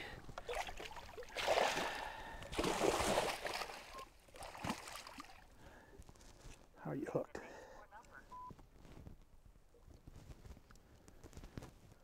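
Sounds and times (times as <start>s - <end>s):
fish thrashing water splashes: 0.4s - 5.5s.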